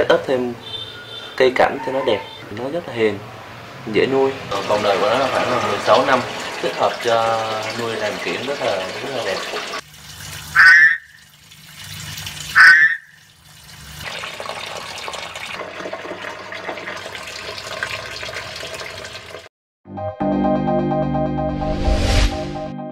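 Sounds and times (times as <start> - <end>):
frogs croaking: 10.6 - 11.2, 12.5 - 13.2.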